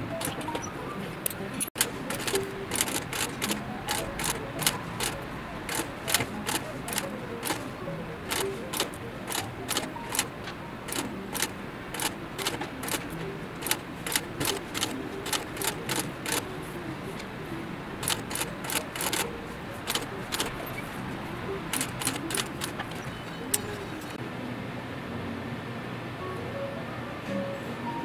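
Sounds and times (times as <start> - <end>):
sewing machine stitch clacks: 0.1 - 0.5, 1.8 - 16.5, 18.0 - 20.6, 21.7 - 23.0.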